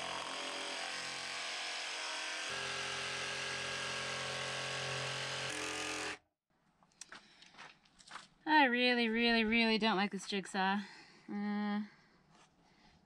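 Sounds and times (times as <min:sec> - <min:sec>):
jigsaw cutting wood: 0:00.0 - 0:06.2.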